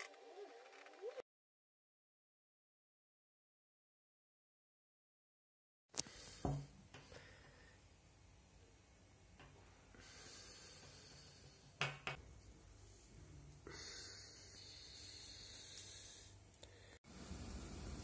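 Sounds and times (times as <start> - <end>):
faint room hiss: 6.0 - 18.0.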